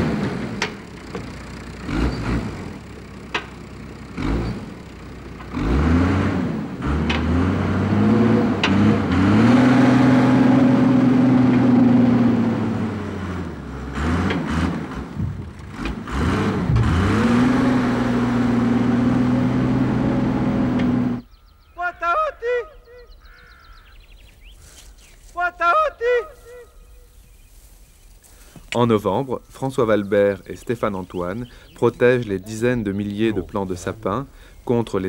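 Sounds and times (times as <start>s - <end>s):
diesel engine revving: 0.0s - 21.3s
sharp engine knocks: 0.2s - 4.5s, 8.4s - 9.2s, 14.1s - 19.0s.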